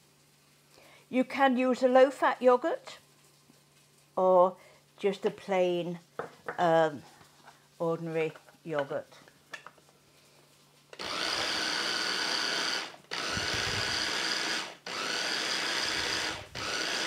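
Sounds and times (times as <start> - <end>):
food processor motor whirring: 11.0 - 17.0.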